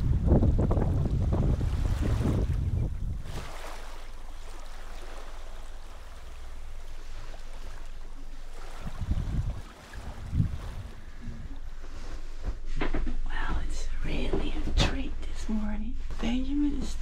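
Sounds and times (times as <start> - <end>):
wind buffeting microphone: 0.0 - 12.9.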